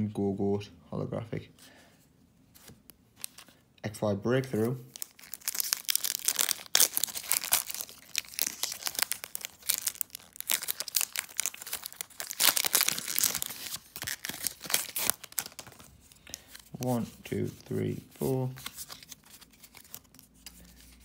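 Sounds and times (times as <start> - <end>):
foil wrapper tearing and crinkling: 4.9 - 16.0.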